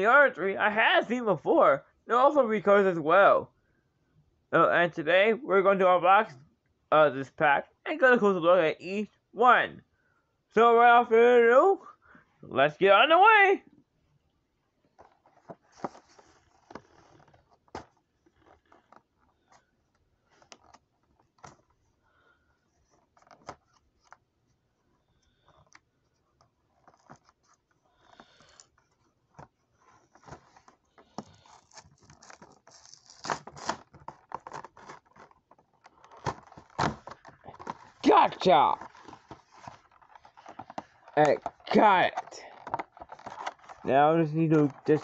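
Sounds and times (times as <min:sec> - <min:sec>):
packaging being opened by hand: 0:30.1 - 0:45.0.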